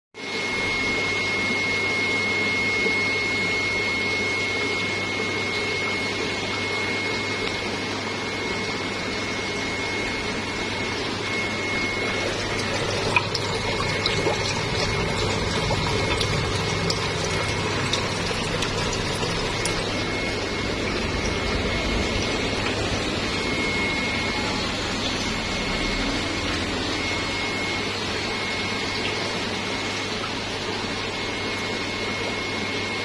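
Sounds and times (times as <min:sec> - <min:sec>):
aquarium pumps humming: 0:00.2 - 0:33.0
thin steady whine: 0:00.2 - 0:33.0.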